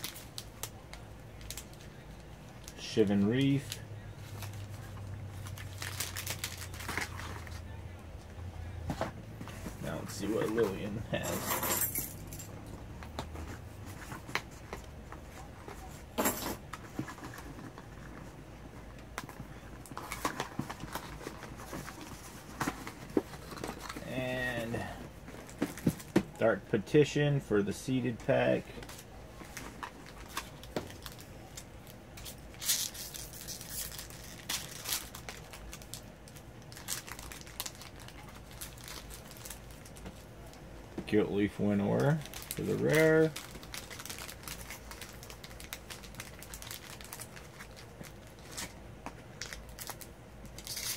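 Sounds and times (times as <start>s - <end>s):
foil wrapper crinkling and tearing: 0.0s - 7.6s, 28.8s - 40.2s, 41.6s - 50.9s
packaging rustle: 0.0s - 7.7s, 19.2s - 26.2s, 28.7s - 40.6s, 41.6s - 50.9s.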